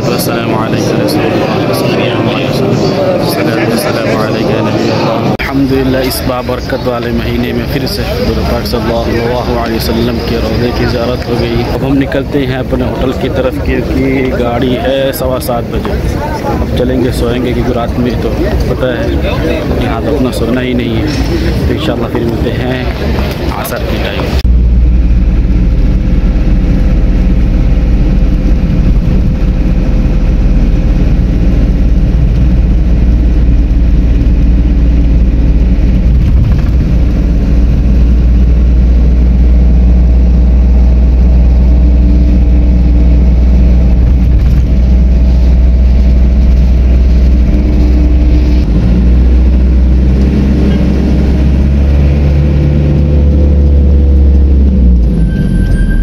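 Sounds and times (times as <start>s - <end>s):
vehicle engine and road rumble: 0.0s - 56.0s.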